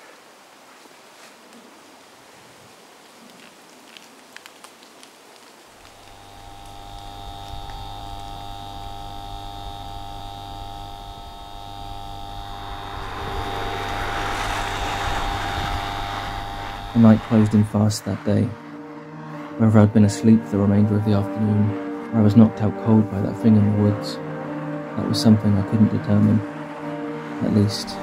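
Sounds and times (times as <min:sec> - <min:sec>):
rising hiss: 0:05.8 - 0:18.7
ominous held drone tones: 0:05.8 - 0:28.0.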